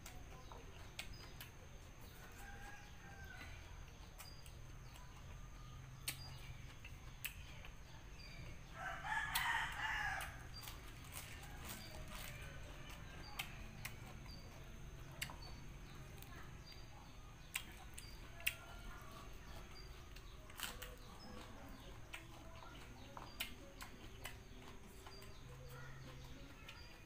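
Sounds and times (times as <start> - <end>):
crunching cabbage being chewed: 0.0 - 27.0
rooster crowing: 8.8 - 10.4.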